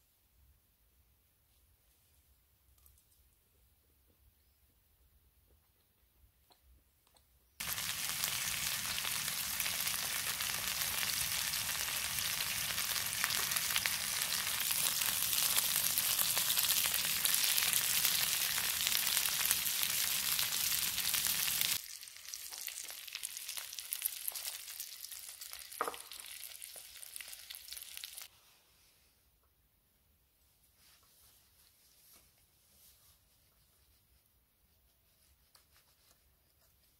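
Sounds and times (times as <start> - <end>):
crackles and spits: 7.6 - 28.3
meat sizzling in a frying pan: 7.6 - 28.3.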